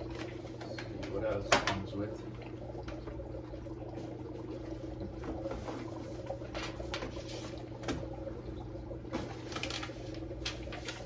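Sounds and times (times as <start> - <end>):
steady low hum: 0.0 - 11.0
packaging rustling: 9.4 - 11.0.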